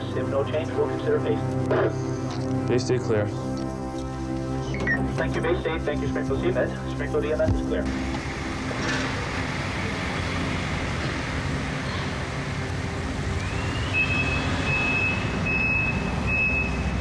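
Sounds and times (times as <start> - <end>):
ambulance engine running: 0.0 - 17.0
reversing alarm beeping: 4.7 - 5.2, 13.3 - 17.0.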